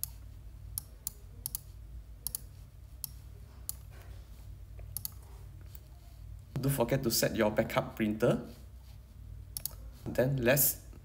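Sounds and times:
faint low hum: 0:00.0 - 0:11.0
sharp clicks: 0:04.9 - 0:05.2, 0:09.5 - 0:09.8.

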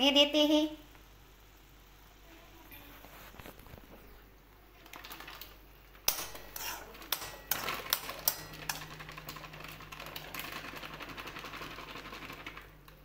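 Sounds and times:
spoon scraping metal pan: 0:06.1 - 0:08.8.

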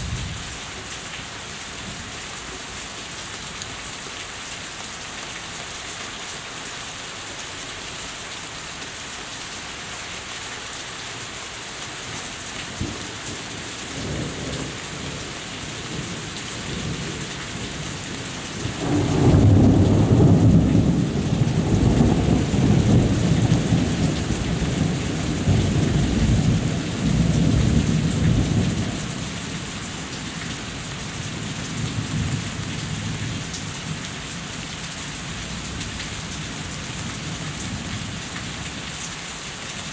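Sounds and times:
heavy rain falling: 0:00.0 - 0:39.9
rolling thunder: 0:18.7 - 0:28.8.

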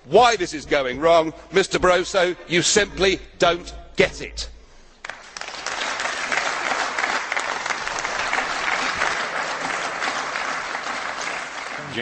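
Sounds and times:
crowd applauding: 0:05.0 - 0:12.0.

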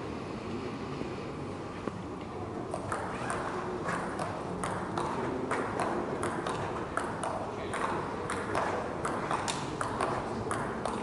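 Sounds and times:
table tennis ball clicking: 0:02.8 - 0:11.0.

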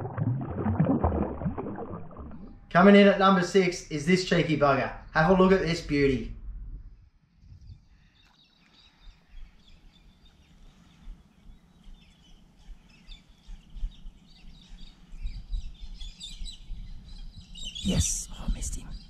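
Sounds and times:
low outdoor rumble: 0:00.0 - 0:08.0
birds chirping: 0:06.9 - 0:19.0.

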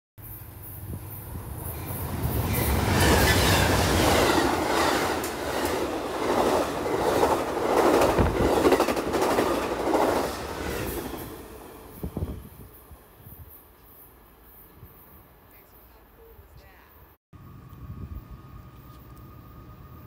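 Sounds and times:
train passing rumble: 0:00.2 - 0:15.4, 0:17.4 - 0:20.0
train wheels clattering: 0:01.8 - 0:11.4.

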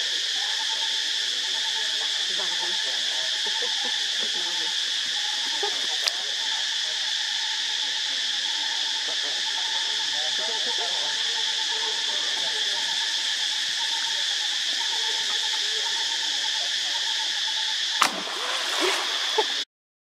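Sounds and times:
insect chorus: 0:00.0 - 0:19.6
water splashing and sloshing: 0:18.0 - 0:19.6.

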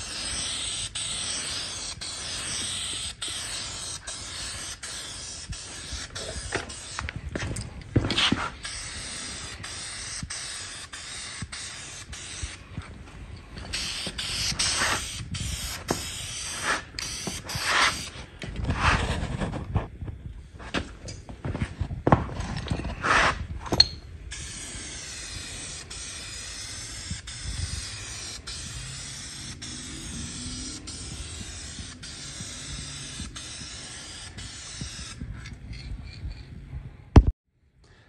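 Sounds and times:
spray-paint can hissing: 0:00.0 - 0:07.1, 0:08.2 - 0:12.6, 0:13.7 - 0:18.1, 0:24.3 - 0:35.2.

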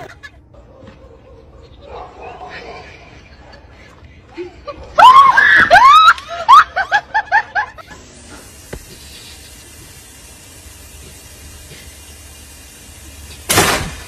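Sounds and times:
high-pitched shrieking laughter: 0:00.0 - 0:00.5, 0:04.3 - 0:08.0.

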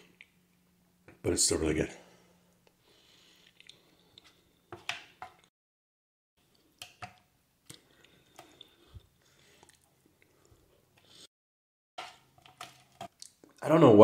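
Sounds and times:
person eating: 0:03.3 - 0:04.4, 0:06.4 - 0:11.3, 0:12.4 - 0:13.6.

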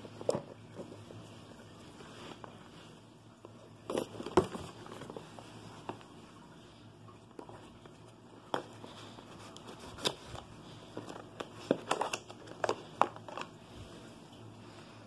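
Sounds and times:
cardboard clicks scrapes and crinkles: 0:08.6 - 0:13.6.

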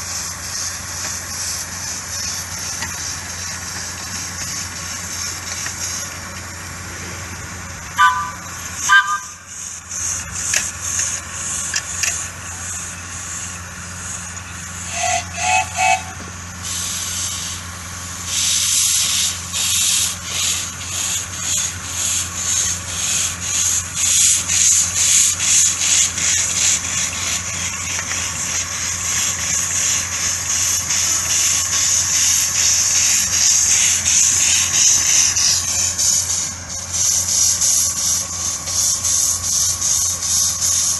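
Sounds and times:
steam hissing: 0:00.0 - 0:40.9
steam locomotive chuffing: 0:00.0 - 0:40.9
two-note steam whistle: 0:07.9 - 0:09.7, 0:14.8 - 0:17.3.

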